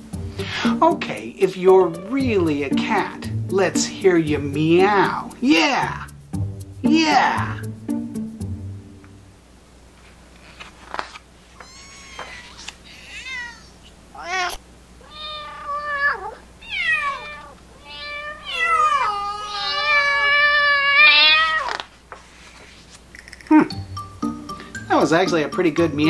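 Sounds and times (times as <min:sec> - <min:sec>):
cat meowing: 0:11.6 - 0:21.9.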